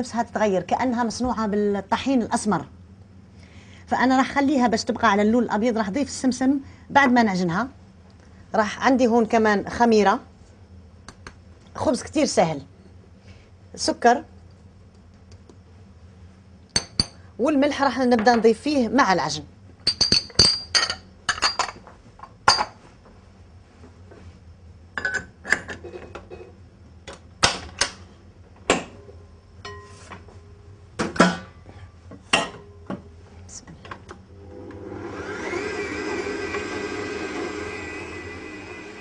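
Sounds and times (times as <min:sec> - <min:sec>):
stand mixer motor running: 0:34.4 - 0:39.0.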